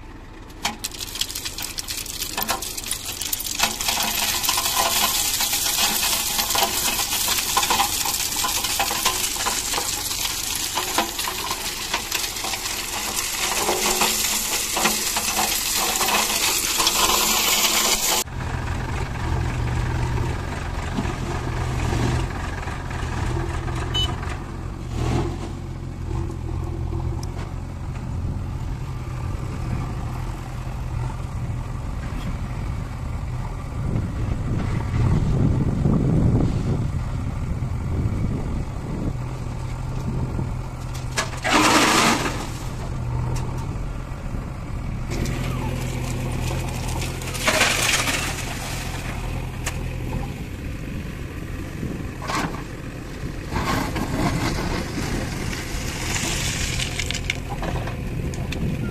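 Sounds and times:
diesel engine running at low revs: 0.0 - 58.9
stones pouring and clattering: 0.5 - 18.3, 40.8 - 42.8, 45.1 - 49.9, 53.5 - 58.7.

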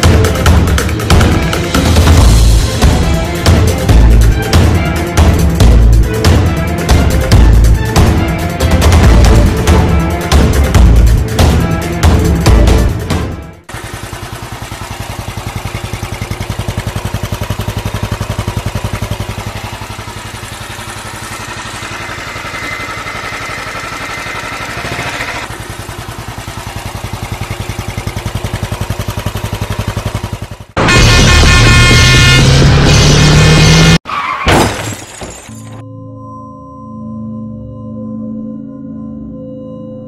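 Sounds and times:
music playing: 0.0 - 13.7
motorcycle engine running: 0.0 - 34.0.

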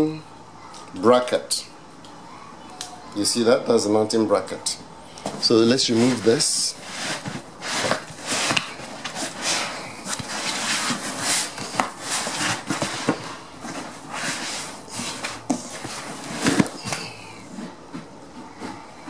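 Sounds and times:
packaging rustling and scraping: 5.2 - 19.0.

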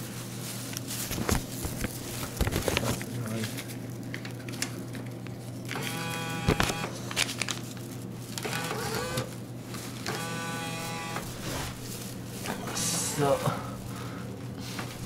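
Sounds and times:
vending machine low hum: 2.9 - 15.0
bill acceptor motor whine: 5.8 - 7.0, 8.4 - 9.4, 10.0 - 11.8, 12.4 - 13.6.

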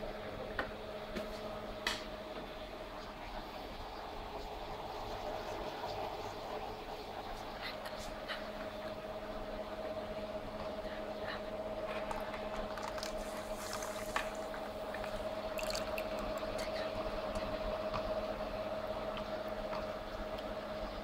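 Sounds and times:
machine hum: 8.5 - 21.0
slush squishing into cup: 12.6 - 16.8.

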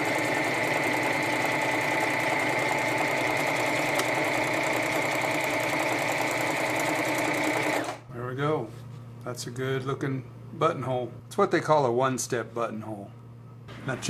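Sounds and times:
sewing machine running: 0.0 - 8.1.

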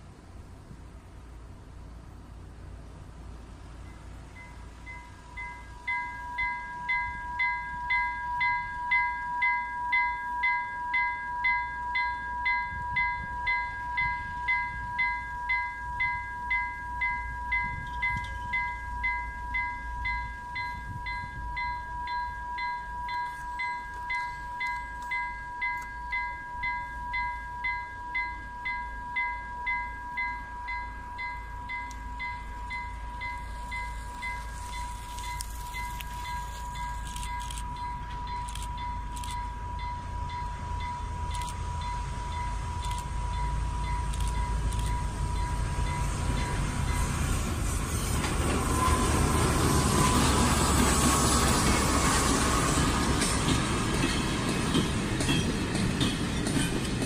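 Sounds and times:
level crossing bell ringing: 4.4 - 42.8.

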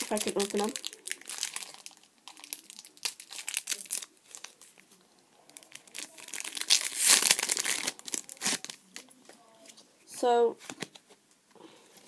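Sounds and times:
wrappers crinkling and crackling: 0.0 - 9.1.

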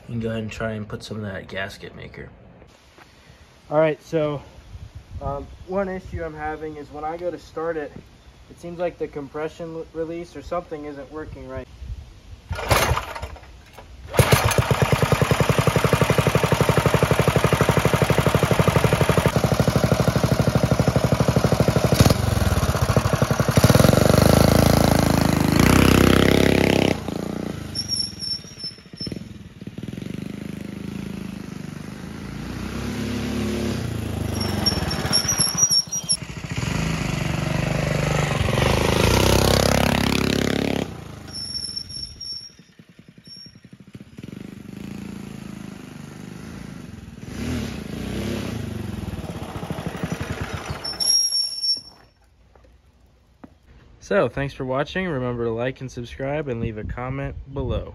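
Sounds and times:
mini bike engine revving: 12.5 - 13.5, 14.1 - 52.1.

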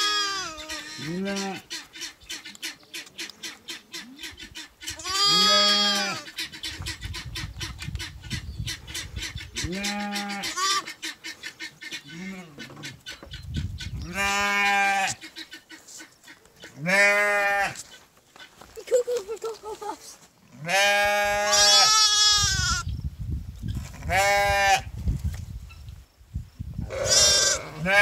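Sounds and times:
sheep bleating: 0.0 - 1.7, 5.0 - 6.3, 16.8 - 17.8, 20.6 - 22.8, 26.9 - 28.0.

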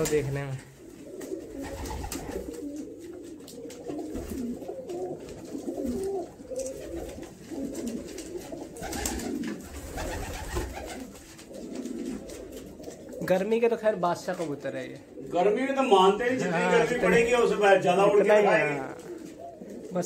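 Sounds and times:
pigeons cooing: 0.0 - 13.4, 18.3 - 20.0
wings fluttering: 1.0 - 13.3.

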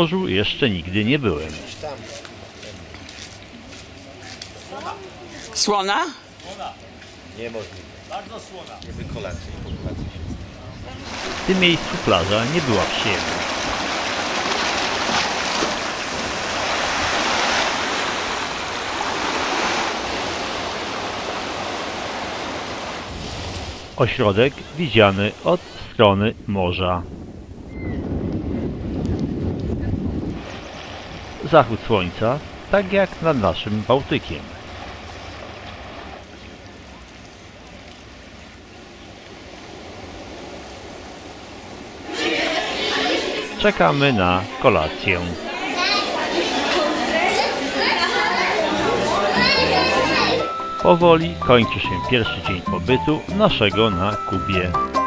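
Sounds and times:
wind rumbling on microphone: 8.8 - 11.5, 26.4 - 31.4
surf washing over rocks: 10.4 - 51.0.

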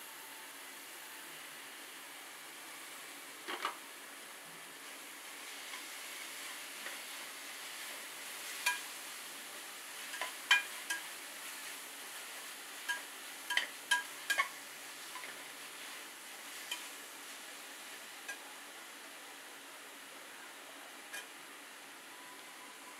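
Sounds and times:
onions frying sizzle: 0.0 - 22.9
spatula clinking against pot: 10.1 - 11.1, 12.9 - 14.5.

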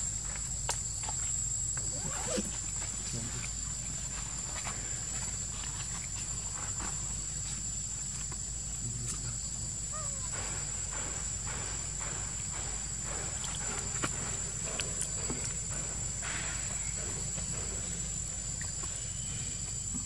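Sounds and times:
high insect drone: 0.0 - 20.0
faint chirp: 16.3 - 20.0.

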